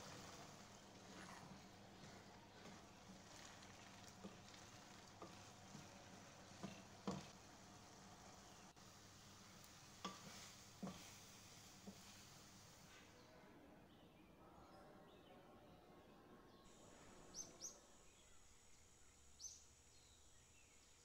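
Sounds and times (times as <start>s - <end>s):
minced meat sizzling faintly: 0.0s - 13.2s
wooden spatula knocking on pan: 4.2s - 7.4s.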